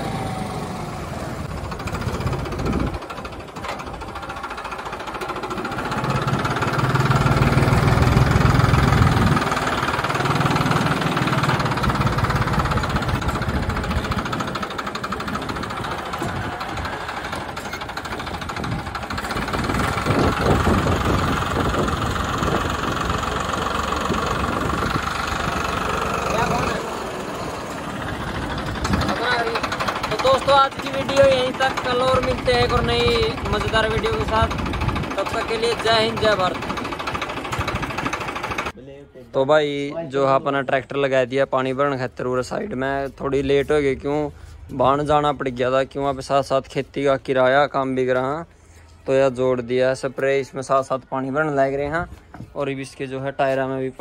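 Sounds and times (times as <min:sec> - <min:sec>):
tractor diesel engine running: 0:00.0 - 0:38.8.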